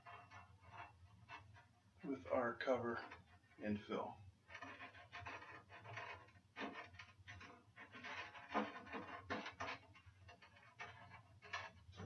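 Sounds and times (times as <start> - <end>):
rubbing and scraping handling: 0.0 - 12.0.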